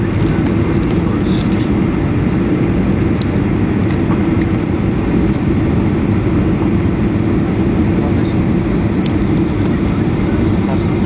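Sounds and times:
jet cabin engine and airflow noise: 0.0 - 11.0.

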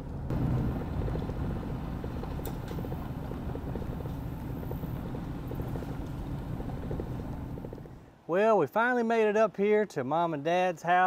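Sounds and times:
truck engine and tyres rumbling: 0.0 - 8.1.

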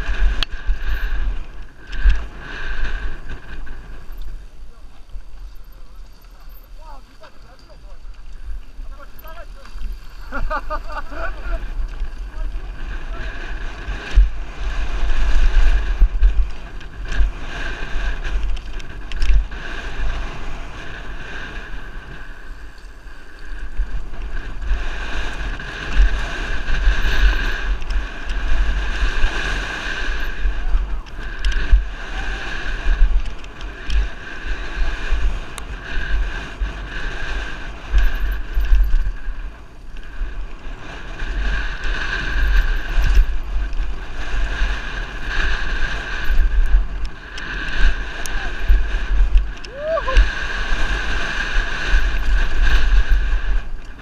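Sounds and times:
bike rattling and knocking: 0.0 - 54.0
wind buffeting microphone: 0.0 - 54.0
tyres crunching over gravel: 3.1 - 13.2.

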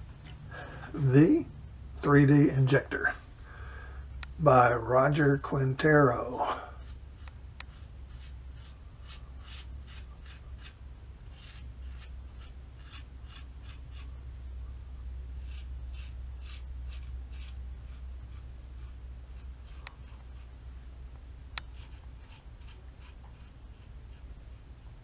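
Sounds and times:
steady low hum: 0.0 - 25.0
razor scraping stubble: 4.5 - 14.2, 15.4 - 20.6, 21.5 - 24.8.

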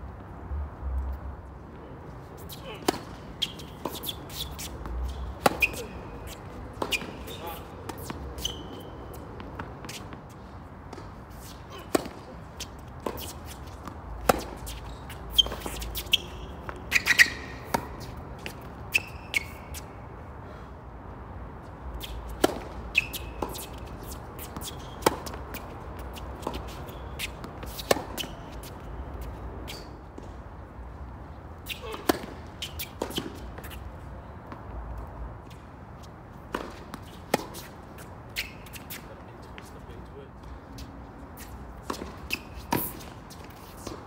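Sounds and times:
shoes squeaking on court: 1.7 - 20.0, 21.7 - 44.0
tennis ball struck by rackets: 2.8 - 10.2, 11.8 - 19.6, 22.0 - 28.8, 31.7 - 33.8, 36.5 - 39.0, 41.8 - 44.0
tennis ball bouncing on hard court: 2.8 - 10.3, 10.9 - 19.9, 22.0 - 30.4, 31.6 - 33.8, 34.4 - 39.7, 41.4 - 44.0.

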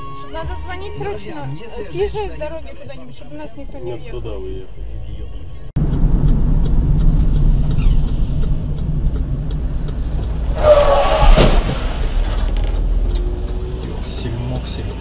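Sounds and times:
car engine and road rumble: 1.9 - 15.0.

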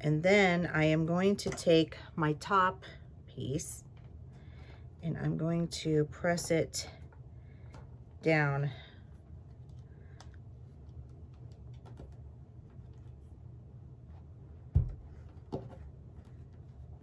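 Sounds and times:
faint plastic clicks and handling: 9.0 - 13.2
dull thump on table: 14.7 - 15.6.

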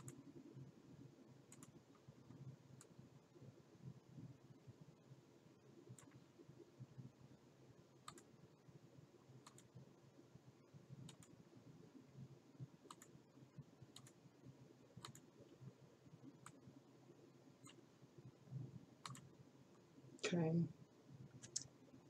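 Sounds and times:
computer mouse clicks: 0.0 - 0.2, 1.5 - 2.1, 5.9 - 6.2, 8.0 - 8.3, 9.4 - 9.7, 11.0 - 11.4, 12.8 - 13.1, 13.9 - 14.2, 15.0 - 15.3, 16.4 - 16.6, 19.0 - 19.3
low steady hum: 0.0 - 22.0.

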